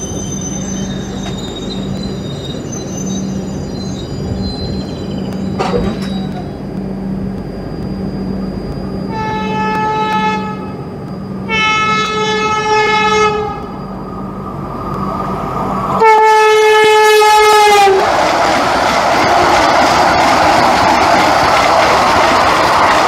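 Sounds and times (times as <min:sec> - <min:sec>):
train rushing past: 0:00.0 - 0:23.0
electric train horn blasts: 0:09.0 - 0:13.8, 0:16.0 - 0:18.0.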